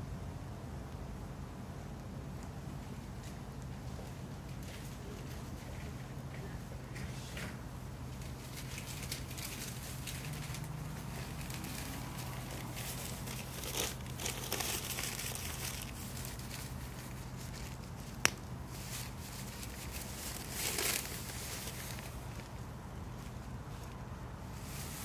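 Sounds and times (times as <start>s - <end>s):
wood fire crackling: 7.8s - 23.4s.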